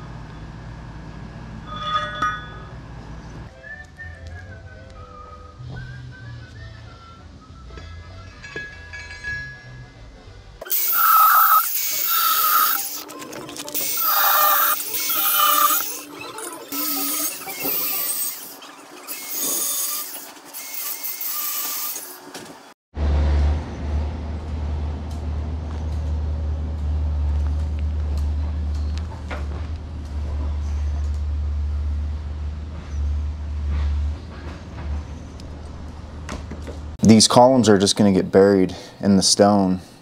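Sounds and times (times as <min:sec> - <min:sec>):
angle grinder grinding steel: 0:10.6 - 0:22.3.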